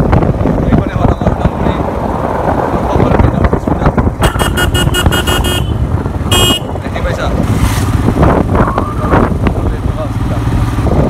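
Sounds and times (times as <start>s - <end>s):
road rumble: 0.0s - 11.0s
wind buffeting microphone: 0.0s - 11.0s
motorcycle engine: 4.0s - 11.0s
high-pitched vehicle horn beeping: 4.2s - 6.7s.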